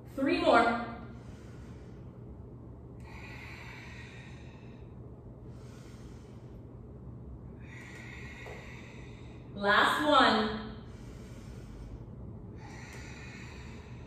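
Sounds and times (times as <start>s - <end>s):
low steady hum: 0.0s - 14.0s
woman breathing slowly: 0.0s - 14.0s.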